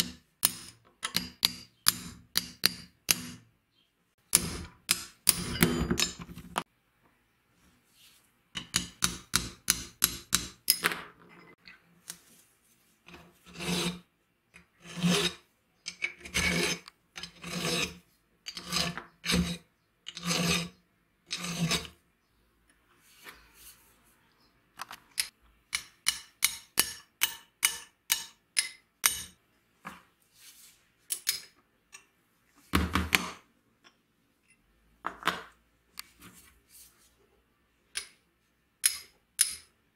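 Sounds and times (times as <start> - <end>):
hand filing on rusty steel: 13.4 - 14.1, 14.8 - 15.4, 16.3 - 19.6.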